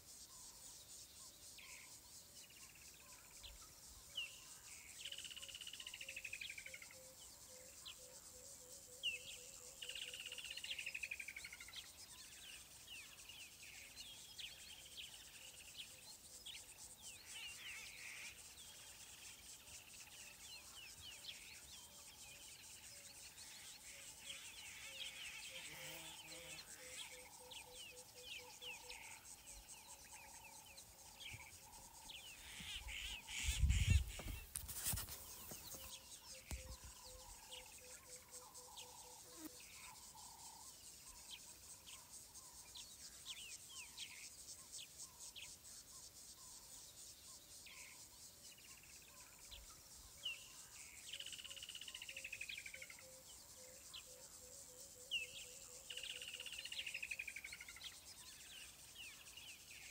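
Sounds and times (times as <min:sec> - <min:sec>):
high insect buzz: 0:23.2 - 0:48.1
birds chirping: 0:27.1 - 0:37.7.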